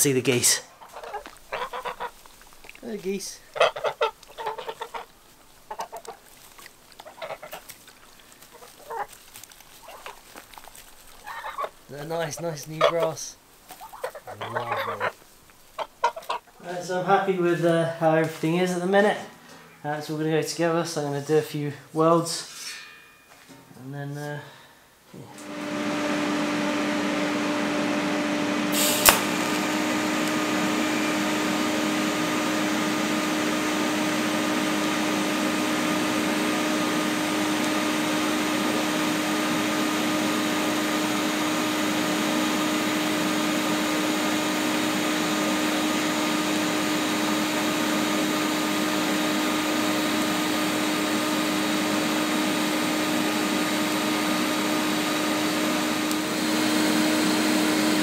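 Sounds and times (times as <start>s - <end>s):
welding arc hissing: 28.7s - 39.2s
sharp crack: 28.8s - 29.7s.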